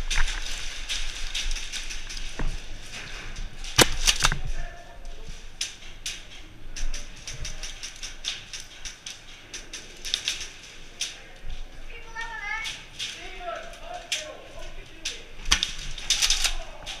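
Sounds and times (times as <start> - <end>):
airsoft gunfire: 3.7 - 4.5.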